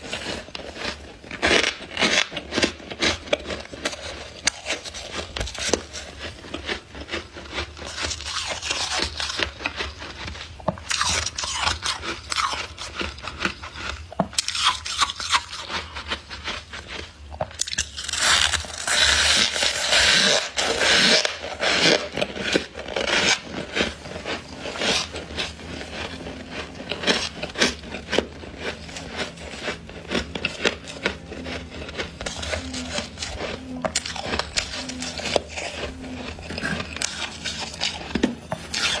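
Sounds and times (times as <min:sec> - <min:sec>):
frost crunching: 0:00.0 - 0:39.0
frost being scraped: 0:17.9 - 0:39.0.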